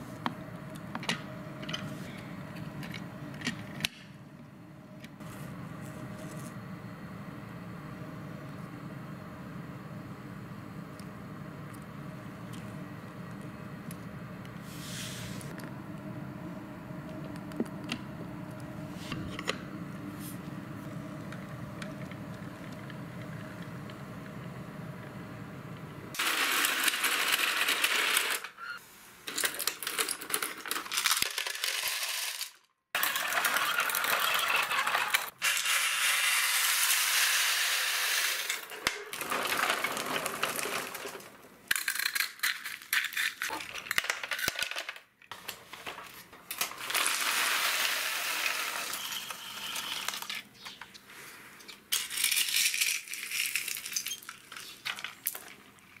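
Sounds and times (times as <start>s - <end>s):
gravel rattling on plastic toys: 29.5s - 35.3s, 39.2s - 45.1s, 51.9s - 56.0s.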